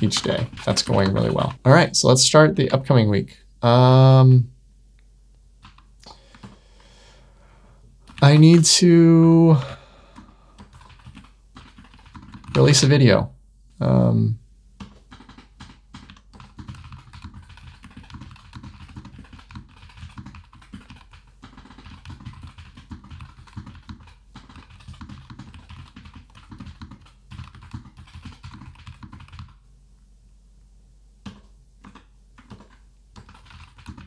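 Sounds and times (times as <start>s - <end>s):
typing on computer keyboard: 0.0s - 1.6s, 5.6s - 6.6s, 8.1s - 8.5s, 9.6s - 12.8s, 14.8s - 29.6s, 31.2s - 34.0s.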